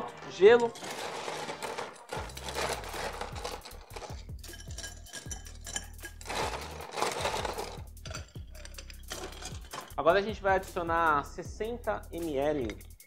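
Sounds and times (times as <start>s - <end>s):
ice cubes clinking in glass: 0.0s - 10.0s.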